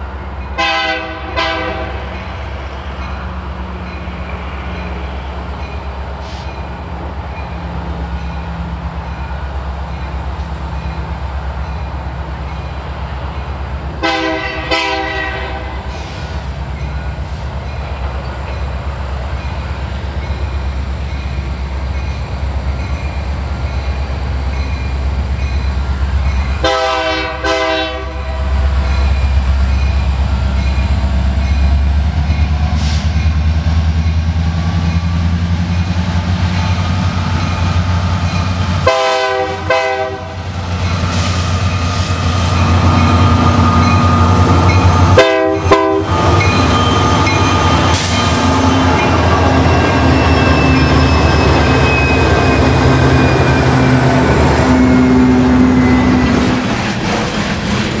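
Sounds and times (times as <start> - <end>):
diesel locomotive rumble: 0.0 - 58.0
train horn blasts: 0.6 - 2.2, 14.0 - 16.2, 26.6 - 28.6, 38.8 - 40.5, 45.0 - 46.4.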